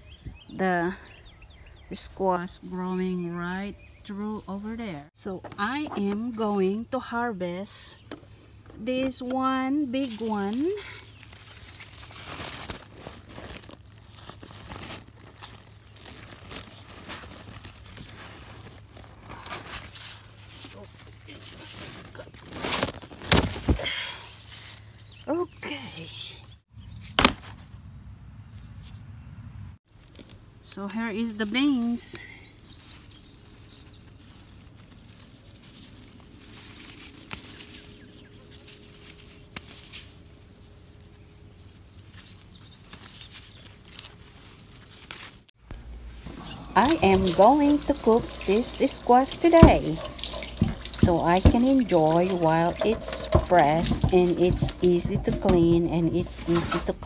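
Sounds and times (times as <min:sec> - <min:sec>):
grass and vines rustling: 0:08.8 - 0:25.8, 0:29.9 - 0:57.0
plastic glove crinkling: 0:09.9 - 0:23.7, 0:32.8 - 0:57.0.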